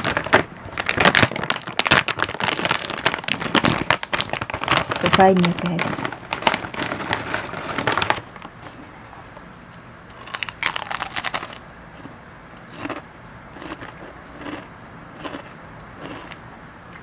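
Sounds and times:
potato chip crunching: 0.0s - 8.4s, 10.1s - 11.6s, 12.7s - 13.0s, 13.6s - 16.4s
chip bag crinkling: 0.0s - 8.7s, 10.1s - 11.6s
chewing crunches: 10.1s - 16.4s.

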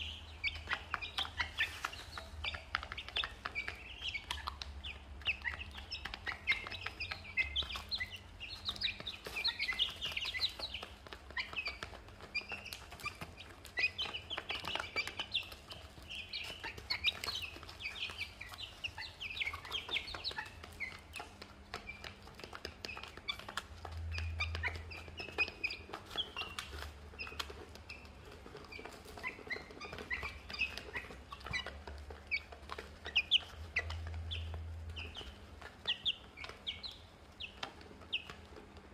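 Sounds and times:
beaks pecking plastic dish: 0.0s - 38.9s
chicks cheeping: 0.0s - 38.9s.

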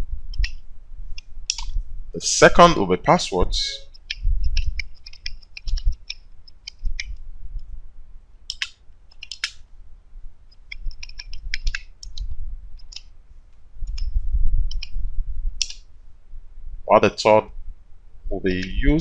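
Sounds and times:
keyboard key clicks: 8.5s - 9.6s, 10.7s - 13.1s, 15.6s - 15.8s.

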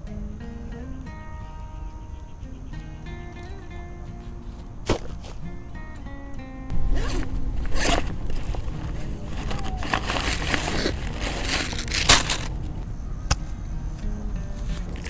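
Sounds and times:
snack packets crinkling in backpack: 6.7s - 12.8s.

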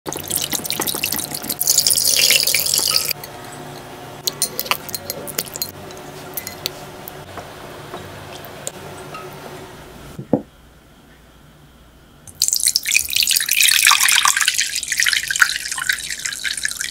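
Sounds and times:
wire whisk beating liquid: 0.1s - 3.2s, 4.3s - 6.7s
metal spoon clinking on glass dish: 4.3s - 6.7s.

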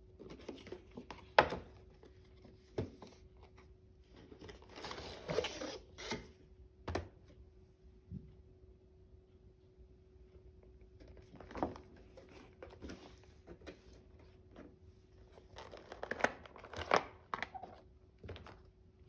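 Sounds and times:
case and packaging crinkling: 15.3s - 18.7s.

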